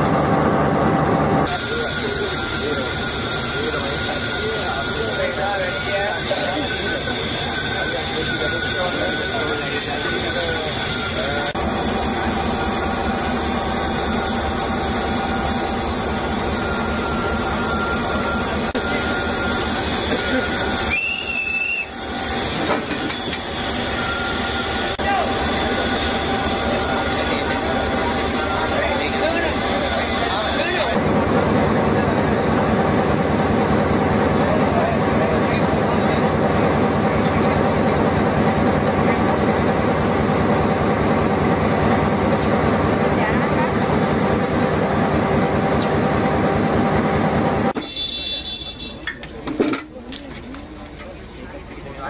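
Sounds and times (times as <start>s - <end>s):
diesel locomotive idling: 0.0s - 49.4s
freight wagon on track: 0.0s - 52.0s
high-pitched wheel squeal: 1.5s - 31.0s.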